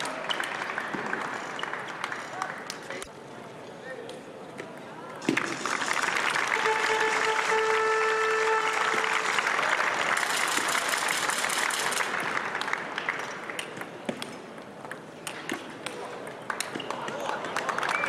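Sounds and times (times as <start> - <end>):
crowd applauding and cheering: 0.0 - 3.0, 5.2 - 13.6, 16.4 - 18.0
horn-like pitched tone: 6.5 - 9.4.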